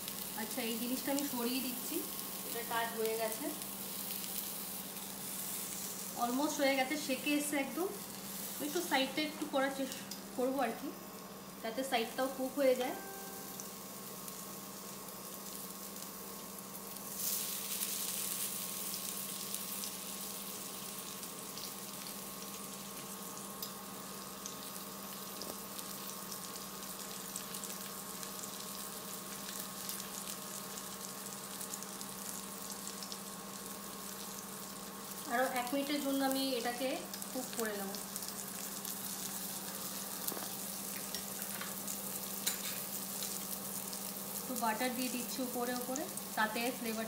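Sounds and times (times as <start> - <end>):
kebabs sizzling and crackling: 0.0 - 47.0.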